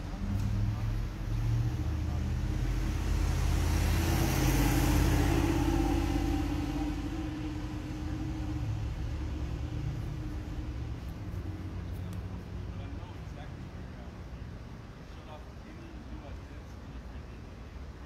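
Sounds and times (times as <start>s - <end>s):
car driving past: 0.0s - 11.9s.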